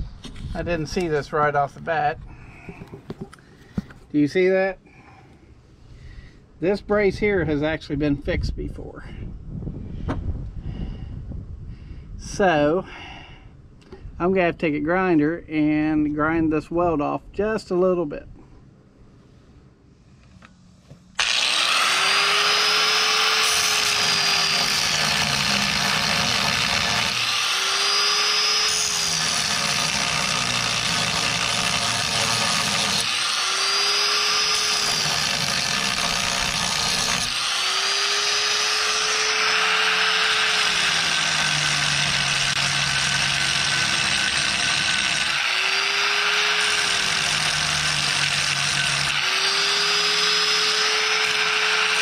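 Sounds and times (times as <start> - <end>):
angle grinder grinding metal: 21.2 - 52.0.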